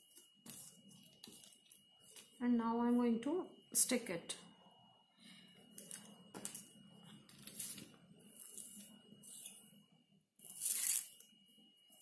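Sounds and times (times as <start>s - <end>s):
rustling and handling noises: 0.0s - 2.4s
faint steady high whine: 0.0s - 12.0s.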